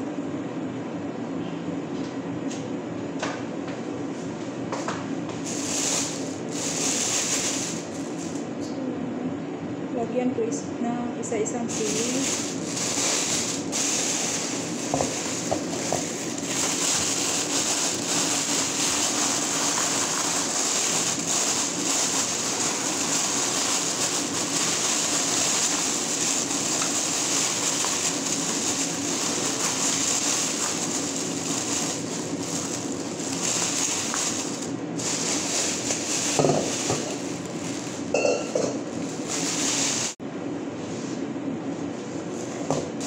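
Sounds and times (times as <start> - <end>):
plastic bags crinkling: 5.4 - 8.3, 11.7 - 40.2.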